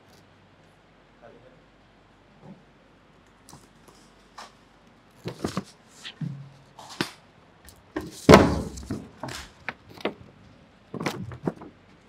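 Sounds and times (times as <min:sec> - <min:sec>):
heavy thump: 0:08.0 - 0:09.3
objects knocking on a table: 0:08.0 - 0:09.4.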